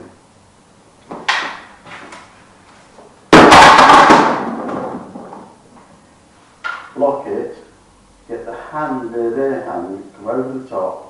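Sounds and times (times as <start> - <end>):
loud crash: 3.3 - 5.6.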